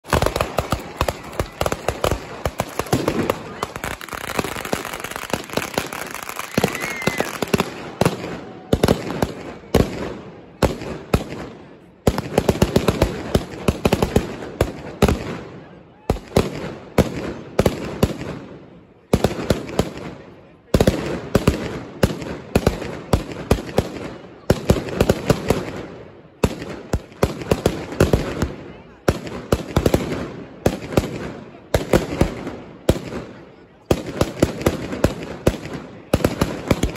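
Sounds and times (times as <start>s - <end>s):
firecrackers exploding in volleys: 0.0s - 36.9s.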